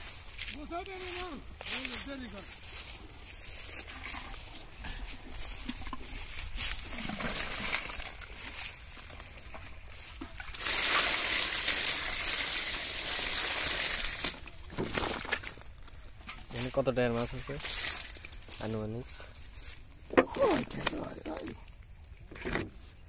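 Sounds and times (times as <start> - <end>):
rustling of fish in basket: 0.0 - 11.2, 13.4 - 21.4
water pouring over fish: 6.8 - 8.5, 10.4 - 15.6, 17.6 - 18.4.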